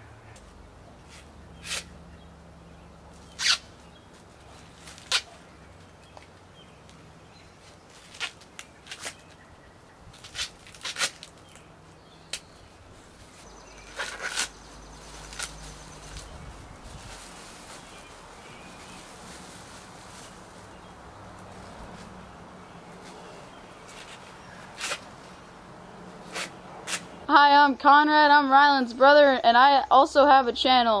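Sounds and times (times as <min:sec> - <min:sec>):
corn husks ripping: 0:03.3 - 0:03.7, 0:04.5 - 0:05.4, 0:07.6 - 0:09.4, 0:10.1 - 0:11.7, 0:13.3 - 0:20.8, 0:23.9 - 0:25.2.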